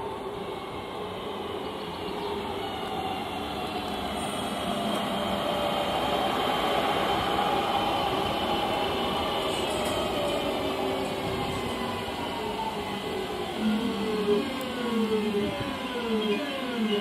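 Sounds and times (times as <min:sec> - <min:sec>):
train traction motor whine: 0:00.0 - 0:17.0
wheels rumbling on rail: 0:00.0 - 0:17.0.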